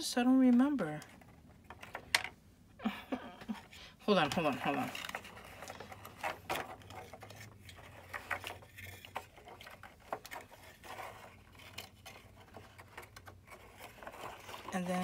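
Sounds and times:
paper rustling and crinkling: 0:03.5 - 0:15.0.

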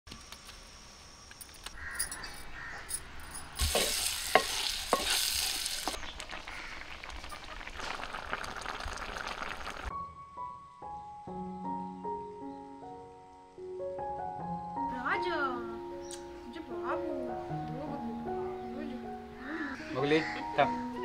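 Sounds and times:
sharp clinks: 0:01.4 - 0:05.1
fruit sizzling in a pan: 0:03.6 - 0:09.9
piano music: 0:09.9 - 0:21.0.

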